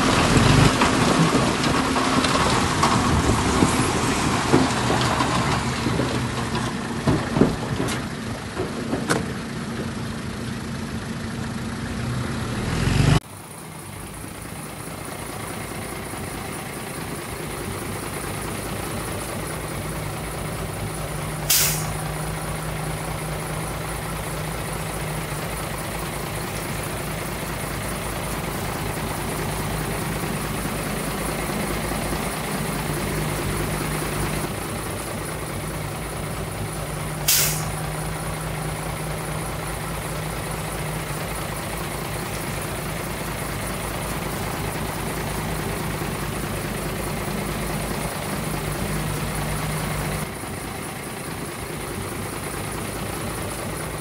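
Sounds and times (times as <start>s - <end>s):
diesel truck engine running: 0.0s - 54.0s
short sharp hiss: 21.4s - 22.0s, 37.3s - 37.8s.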